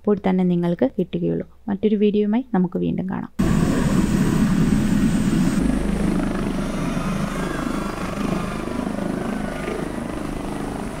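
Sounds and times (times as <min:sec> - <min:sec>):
helicopter rotor chopping: 0:03.4 - 0:11.0.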